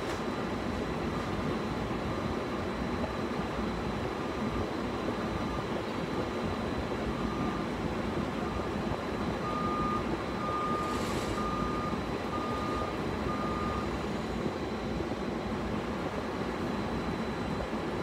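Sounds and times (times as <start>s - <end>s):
reversing alarm beeping: 7.1s - 7.7s, 8.4s - 15.3s.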